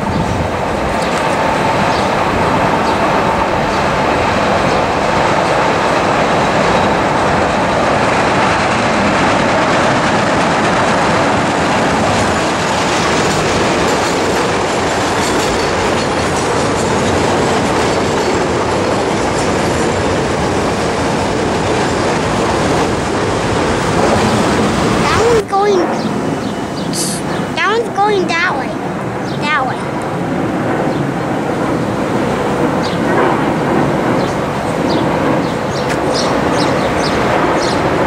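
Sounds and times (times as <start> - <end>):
train wheels on rails: 0.0 - 38.0.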